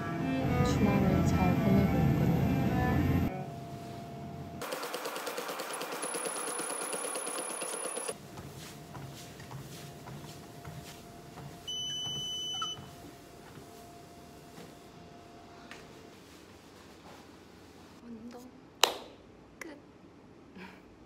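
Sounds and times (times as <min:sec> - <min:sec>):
footfalls running on treadmill: 0:04.6 - 0:13.8
electronic beep: 0:11.7 - 0:12.9.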